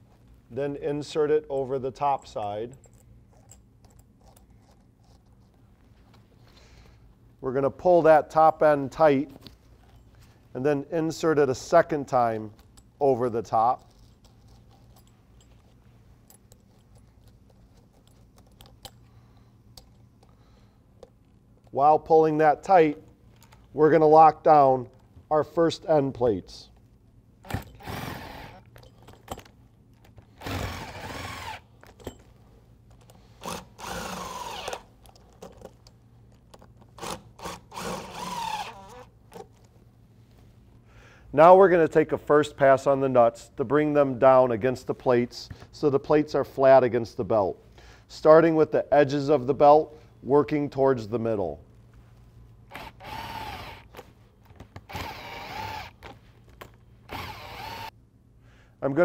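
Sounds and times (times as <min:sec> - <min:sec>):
cordless drill spinning nuts: 0:27.4 - 0:28.7, 0:30.4 - 0:31.7, 0:33.4 - 0:34.9, 0:37.0 - 0:39.1, 0:52.7 - 0:54.0, 0:54.8 - 0:56.2, 0:57.1 - 0:57.9.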